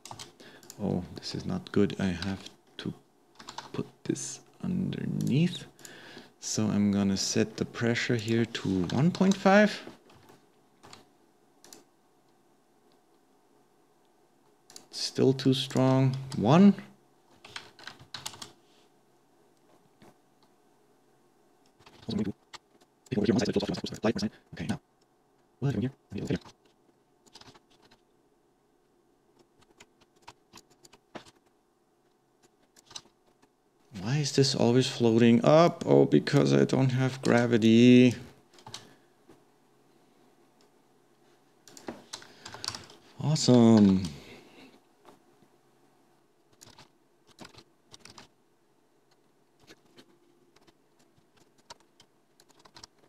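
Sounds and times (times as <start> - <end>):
keyboard and mouse clicks: 0.0 - 0.8, 3.4 - 3.8, 10.0 - 11.9, 14.7 - 14.9, 26.2 - 28.0, 32.4 - 33.5, 38.5 - 38.9, 41.6 - 43.0, 46.5 - 48.3, 49.1 - 53.0.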